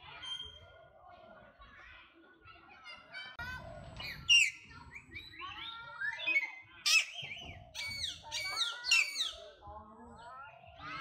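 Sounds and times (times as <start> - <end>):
monkeys squealing and chirping: 4.0 - 9.4.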